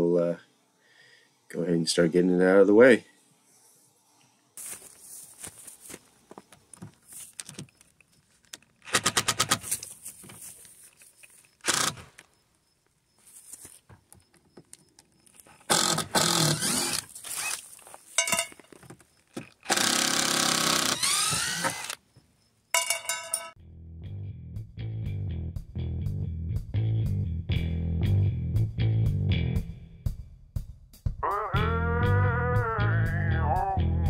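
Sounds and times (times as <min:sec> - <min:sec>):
cordless driver backing out screws: 0:11.6 - 0:12.2, 0:15.5 - 0:17.6, 0:19.4 - 0:22.0.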